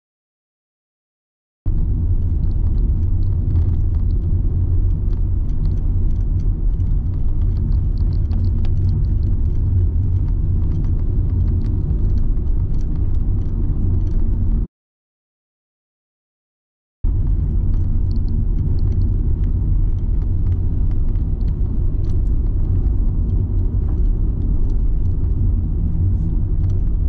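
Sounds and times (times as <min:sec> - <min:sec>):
car interior road rumble: 0:01.7 - 0:14.7, 0:17.1 - 0:27.0.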